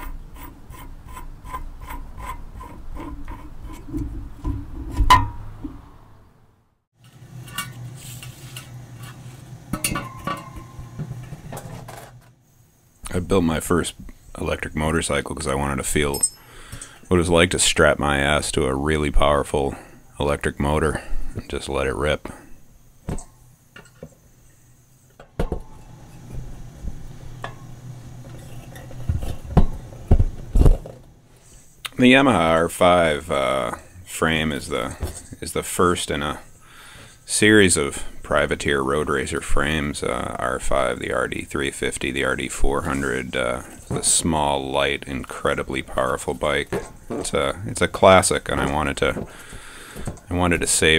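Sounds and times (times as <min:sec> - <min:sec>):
low steady hum: 0:00.0 - 0:50.9
metal parts clinking: 0:16.1 - 0:17.0.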